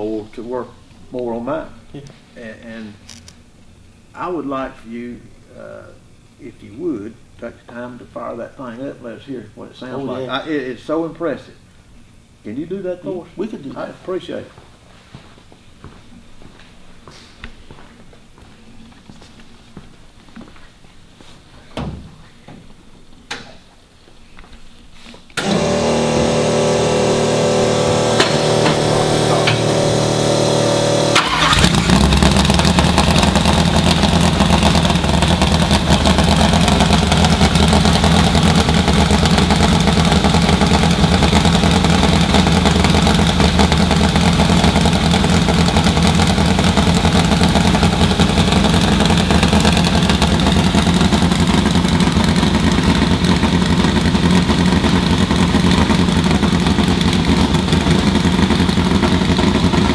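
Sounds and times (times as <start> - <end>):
loud engine running: 25.4 - 59.9
starter motor cranking whine: 25.4 - 59.9.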